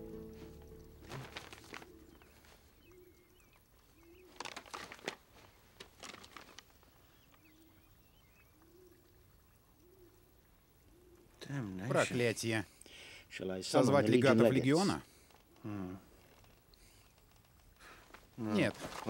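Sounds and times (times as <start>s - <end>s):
paper rustling: 0.4s - 2.6s, 4.2s - 6.9s, 17.9s - 19.0s
faint bird calls: 1.0s - 4.6s, 6.9s - 11.6s.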